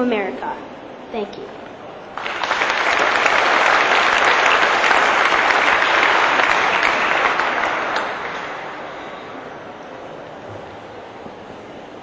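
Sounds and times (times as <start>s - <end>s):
audience applauding: 2.0s - 9.8s.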